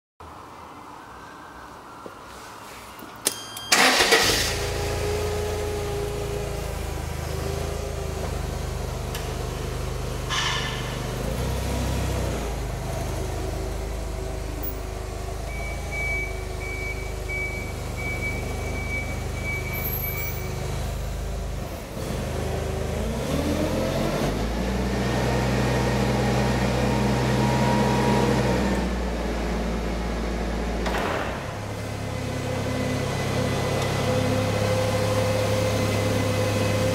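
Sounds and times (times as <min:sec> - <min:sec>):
forklift engine running: 0:03.7 - 0:36.9.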